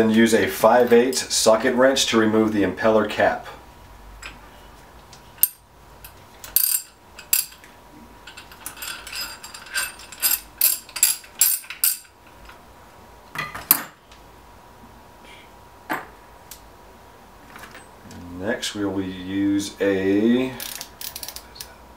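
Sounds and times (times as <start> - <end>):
ratchet wrench clicking: 6.5 - 7.6, 8.8 - 12.1, 20.6 - 21.5.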